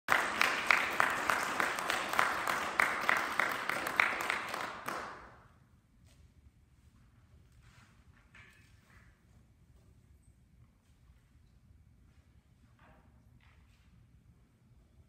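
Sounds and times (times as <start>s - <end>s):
audience applauding: 0.1s - 5.4s.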